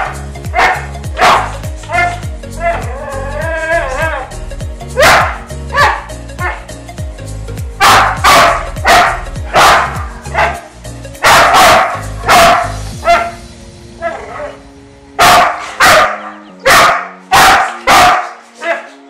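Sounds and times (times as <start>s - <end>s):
dog barking: 0.0s - 2.8s, 5.0s - 6.7s, 7.8s - 10.6s, 11.2s - 13.4s, 15.2s - 18.9s.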